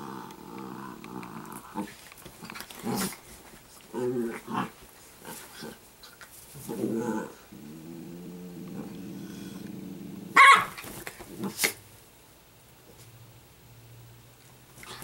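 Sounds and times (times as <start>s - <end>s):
dogs growling: 0.0s - 10.6s
dog snarls and yaps: 10.3s - 11.8s.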